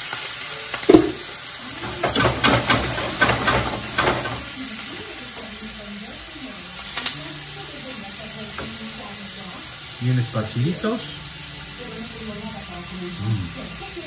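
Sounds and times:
shrimp sizzling in oil: 0.0 - 14.0
pan knock: 0.9 - 1.4.

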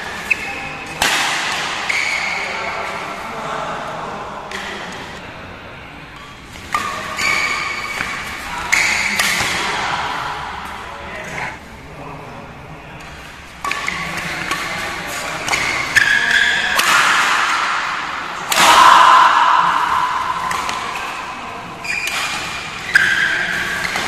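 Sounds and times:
rackets striking shuttlecock: 0.4 - 2.2, 6.6 - 9.7, 13.6 - 24.0.

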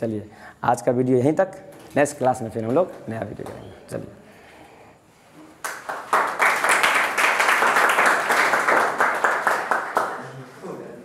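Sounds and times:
group of people clapping: 5.5 - 10.5.

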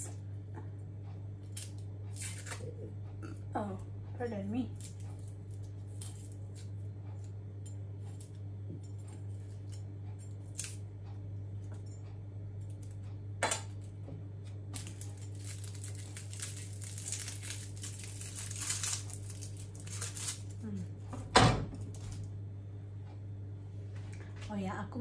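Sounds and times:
steady low hum: 0.0 - 25.0
dry skin crackling and tearing: 1.4 - 2.7, 4.7 - 6.8, 9.4 - 10.8, 14.6 - 20.7.

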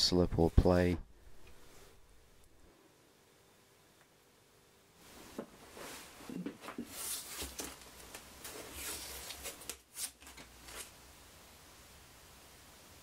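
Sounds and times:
hands rustling and scraping: 5.0 - 11.0.

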